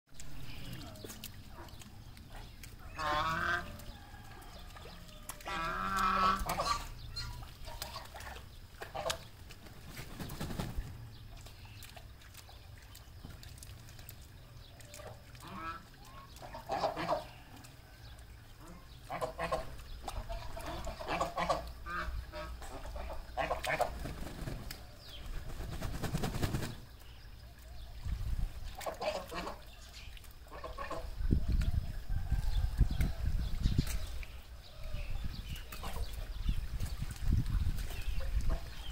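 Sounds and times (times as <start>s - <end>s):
ducks quacking: 0.5s - 3.8s, 5.3s - 9.3s, 15.0s - 17.5s, 18.6s - 24.2s, 28.7s - 29.7s, 30.4s - 31.2s.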